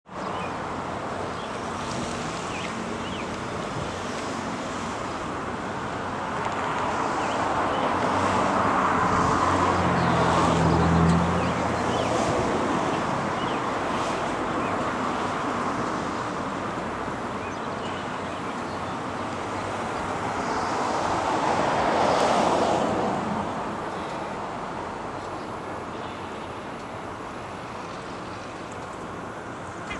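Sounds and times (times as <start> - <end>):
road traffic hum: 0.0 - 29.9
vehicle passing by: 6.7 - 16.3, 19.3 - 24.4.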